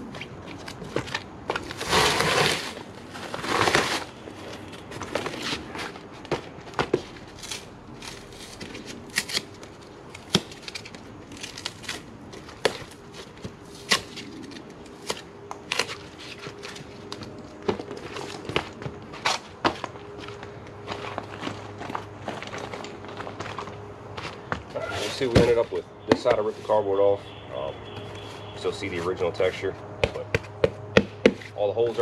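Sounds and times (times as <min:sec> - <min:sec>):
foam snapping and crackling: 0:01.6 - 0:04.1, 0:07.4 - 0:17.2
cardboard tearing off foam: 0:01.6 - 0:04.2, 0:07.3 - 0:16.6.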